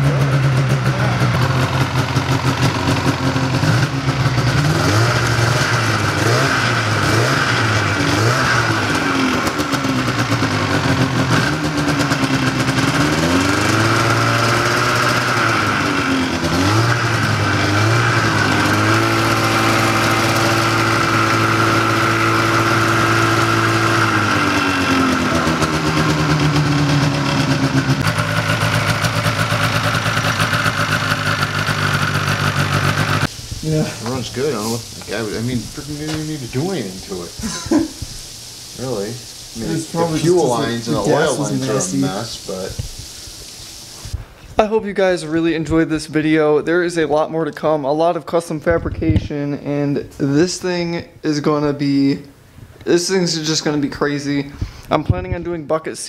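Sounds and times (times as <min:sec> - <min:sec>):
two-stroke engine revving: 0:00.0 - 0:42.7.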